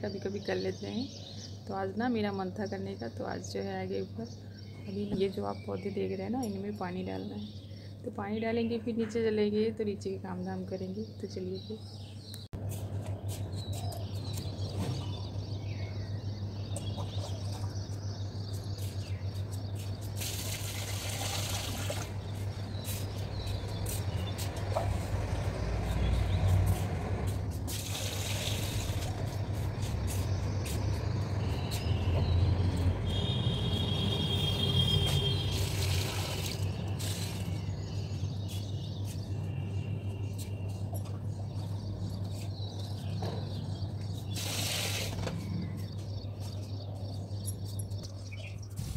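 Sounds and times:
running splashing water: 0:20.2 - 0:22.2, 0:35.4 - 0:37.5.

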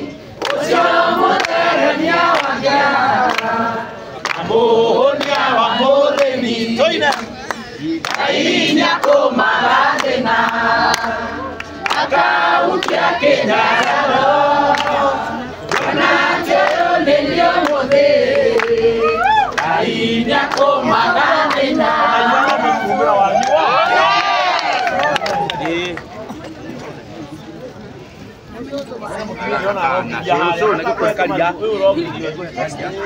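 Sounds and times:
crowd singing: 0:00.0 - 0:24.7
hands clapping: 0:00.4 - 0:01.7, 0:02.3 - 0:02.6, 0:03.2 - 0:03.5, 0:04.2 - 0:05.5, 0:06.1 - 0:08.3, 0:09.9 - 0:13.1, 0:13.7 - 0:14.0, 0:14.6 - 0:15.0, 0:15.6 - 0:16.9, 0:17.6 - 0:18.9, 0:19.5 - 0:19.8, 0:20.4 - 0:20.8, 0:23.3 - 0:23.6, 0:24.6 - 0:26.1.

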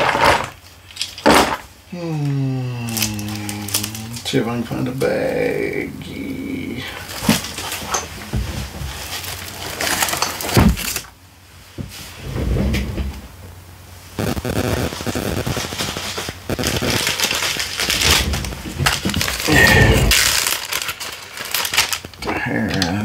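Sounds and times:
plastic bags crinkling: 0:02.9 - 0:04.3, 0:07.0 - 0:11.1, 0:14.9 - 0:23.0.

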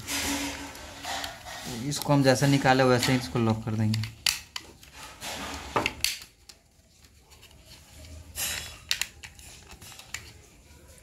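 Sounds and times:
plastic rubbing against plastic: 0:00.0 - 0:11.0
plastic casing clicking: 0:03.0 - 0:04.7.

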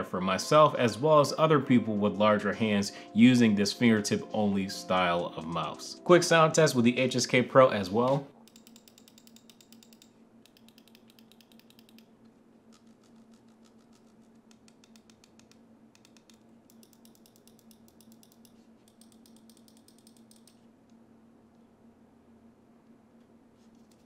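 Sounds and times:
mouse buttons clicking rapidly: 0:08.5 - 0:12.1, 0:12.7 - 0:20.6.

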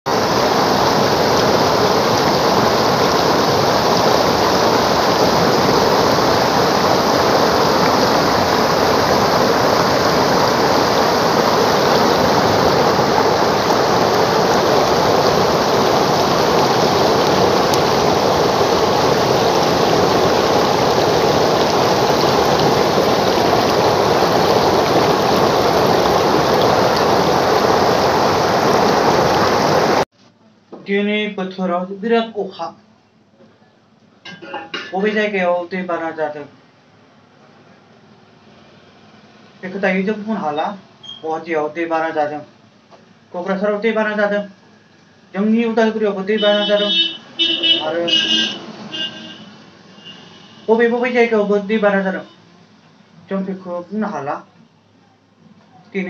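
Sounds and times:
floodwater rushing over a weir: 0:00.1 - 0:30.1.

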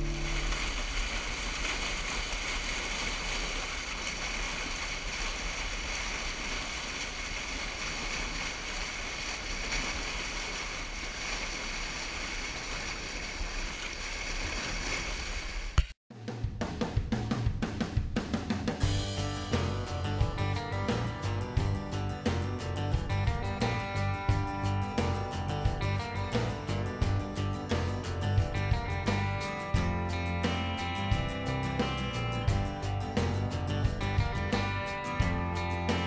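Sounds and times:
river water over rapids: 0:00.0 - 0:15.8
music with drum beat: 0:16.1 - 0:36.0.

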